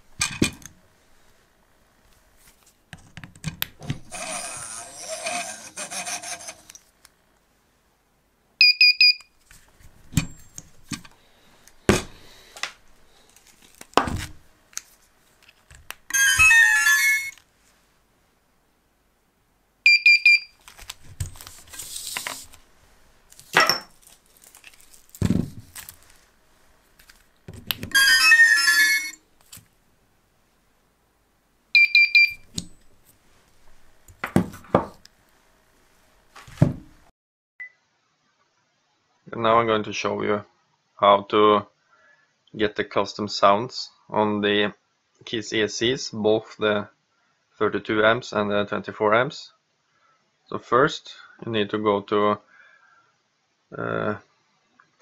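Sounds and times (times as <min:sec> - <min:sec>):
sound clip played through motors: 0:04.1 - 0:06.8.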